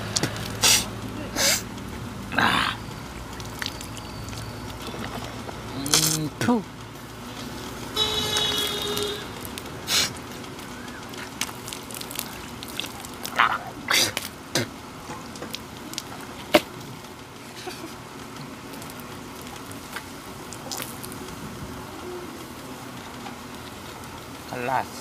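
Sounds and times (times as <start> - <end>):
water splashing onto dirt: 2.8 - 17.1, 18.2 - 21.5
water spatters: 2.9 - 6.3, 8.6 - 17.0, 18.4 - 21.3.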